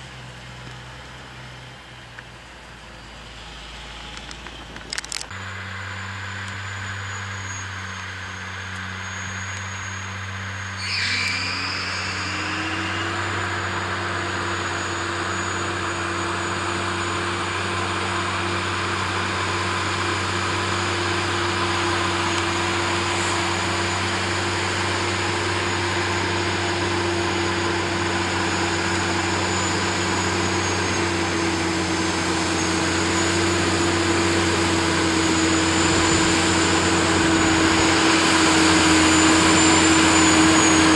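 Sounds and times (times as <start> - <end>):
vehicle engine running: 0.0 - 40.9
hum rising in pitch: 2.9 - 40.9
short high sound: 5.3 - 17.9.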